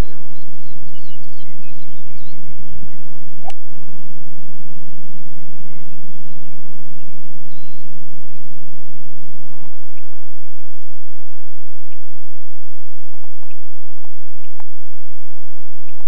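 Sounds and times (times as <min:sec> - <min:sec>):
bird chirp: 0:00.0 - 0:03.3, 0:05.4 - 0:10.2
low hum: 0:00.0 - 0:16.0.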